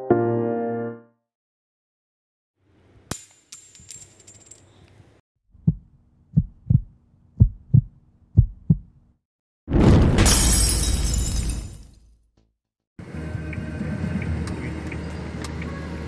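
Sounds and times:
heartbeat thumps: 0:05.6 - 0:09.0
loud crash: 0:09.7 - 0:11.7.

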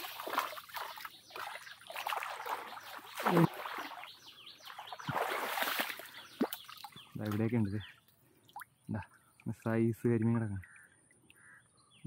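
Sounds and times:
water sloshing and splashing: 0:00.0 - 0:08.9
loud splash: 0:05.0 - 0:06.6.

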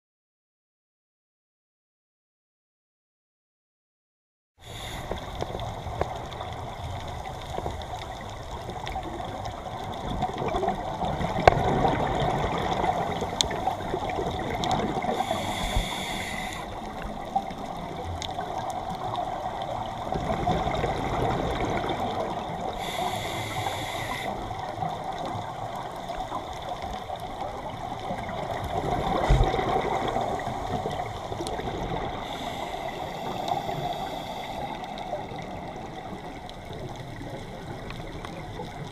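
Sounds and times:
steady watery wash: 0:04.6 - 0:38.9
underwater bubbling exhalation: 0:08.1 - 0:38.9.

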